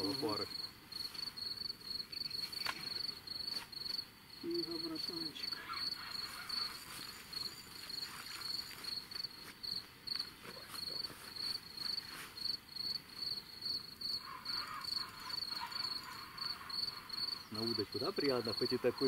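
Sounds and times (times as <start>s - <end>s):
cricket chirping: 0.0s - 19.0s.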